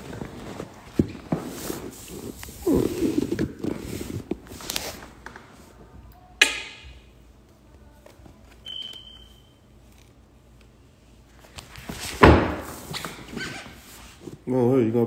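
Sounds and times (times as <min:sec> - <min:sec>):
shuffling handling noise: 0:00.0 - 0:05.9, 0:11.0 - 0:14.5.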